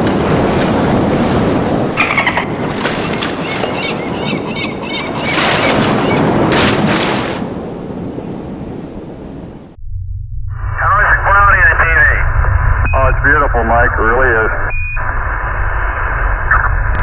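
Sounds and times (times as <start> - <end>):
loud surges of rushing water: 0.0 - 4.4, 5.0 - 9.6
rushing surf: 0.0 - 9.8
chirping animal calls: 2.0 - 6.3.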